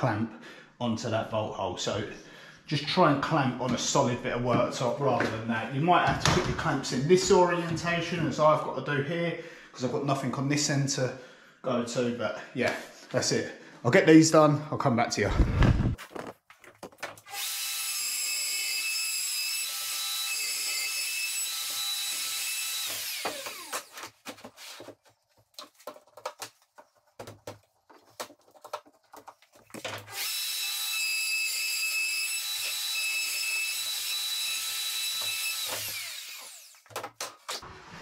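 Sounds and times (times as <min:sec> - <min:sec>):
router high whine: 0:30.1 - 0:36.8
tool handling knocks and clicks: 0:36.8 - 0:37.6.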